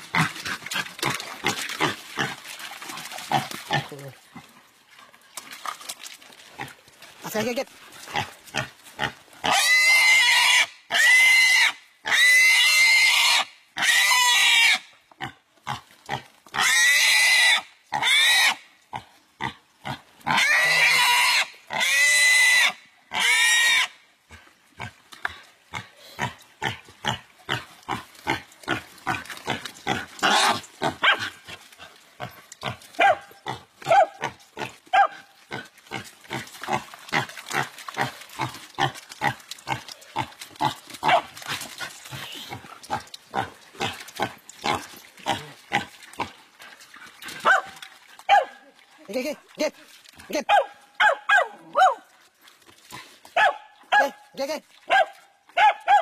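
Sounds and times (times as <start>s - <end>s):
pig squealing: 9.4s - 14.8s, 16.6s - 18.6s, 20.3s - 23.9s, 29.9s - 31.3s.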